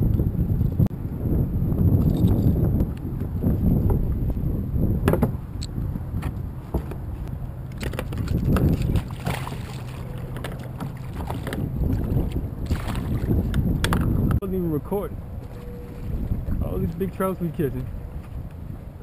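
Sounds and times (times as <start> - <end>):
wind buffeting microphone: 0.0 - 19.0
water lapping: 7.7 - 13.5
fish splashing at surface: 7.8 - 13.3.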